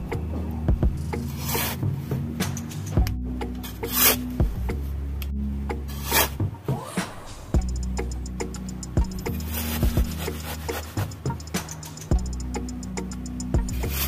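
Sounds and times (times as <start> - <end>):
metal trowel scraping sand: 1.2 - 1.8, 3.6 - 4.3, 5.9 - 6.4, 9.2 - 12.0, 13.7 - 14.0.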